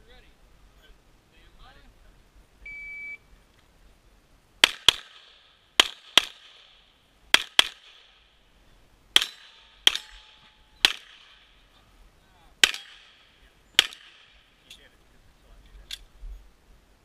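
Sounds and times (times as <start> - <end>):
shot timer beep: 2.6 - 3.2
pistol shots with echo: 4.6 - 8.2, 9.2 - 11.5, 12.6 - 14.4.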